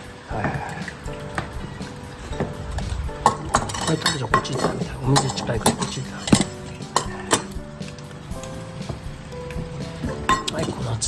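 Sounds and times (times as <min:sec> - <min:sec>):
metal food bowls clinking: 0:03.2 - 0:08.6, 0:10.0 - 0:11.0.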